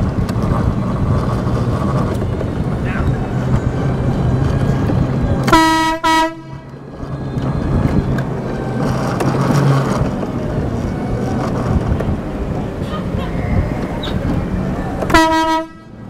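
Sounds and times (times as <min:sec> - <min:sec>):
air horn blasts: 0:05.4 - 0:06.8, 0:15.0 - 0:16.0.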